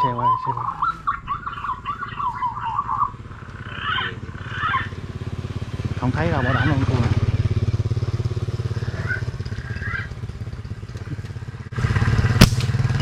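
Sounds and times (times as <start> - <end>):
motorcycle engine running: 0.0 - 13.0
sharp snap: 12.4 - 12.9.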